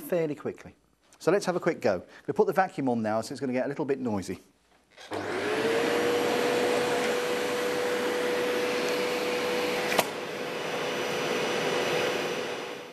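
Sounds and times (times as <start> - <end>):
vacuum cleaner whine: 5.0 - 12.9.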